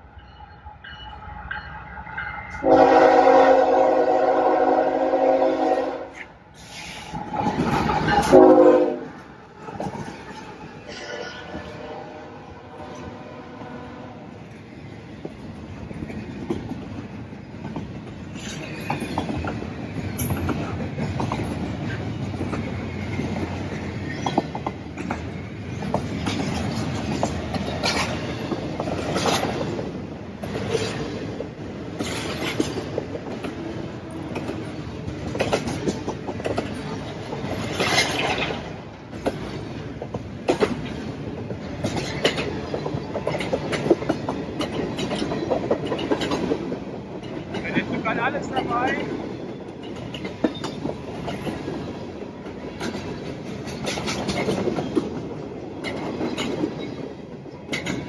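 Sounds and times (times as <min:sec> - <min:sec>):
rumble of train wheels on rail: 0:00.0 - 0:58.0
clanks over rail joints: 0:15.2 - 0:58.0.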